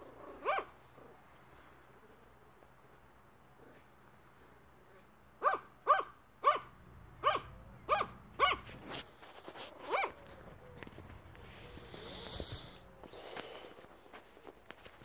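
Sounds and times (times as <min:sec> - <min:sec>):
small dog barking: 0:00.4 - 0:00.7, 0:05.4 - 0:08.7, 0:09.9 - 0:10.2.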